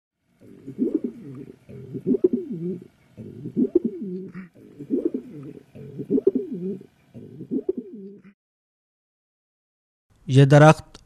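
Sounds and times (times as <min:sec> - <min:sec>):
pigeon cooing: 0:00.4 - 0:08.4.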